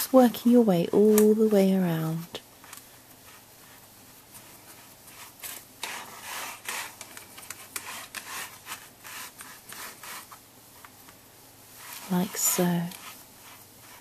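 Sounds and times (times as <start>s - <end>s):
fingers rubbing pastry in tin: 3.2s - 10.4s, 11.8s - 14.0s.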